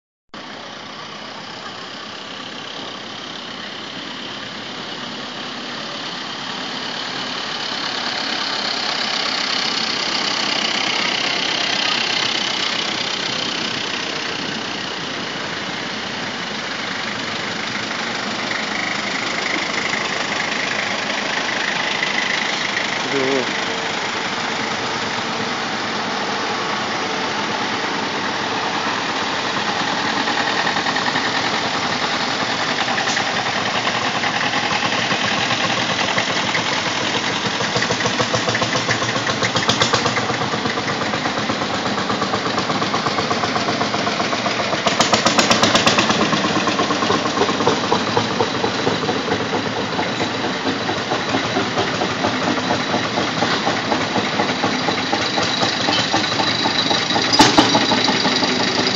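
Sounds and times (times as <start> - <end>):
engine chugging rapidly: 0.4 - 58.9
tractor engines running: 0.4 - 58.9.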